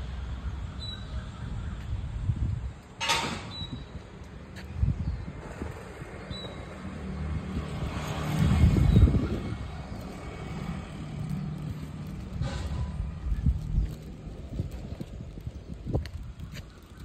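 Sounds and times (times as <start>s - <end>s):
traffic engine hum: 0.0s - 17.0s
vehicle passing: 5.3s - 15.2s.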